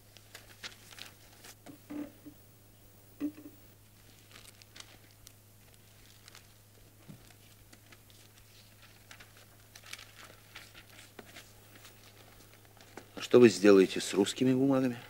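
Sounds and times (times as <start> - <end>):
steady low hum: 0.0 - 14.2
paper rustling and clicks: 0.1 - 1.6, 6.0 - 13.4.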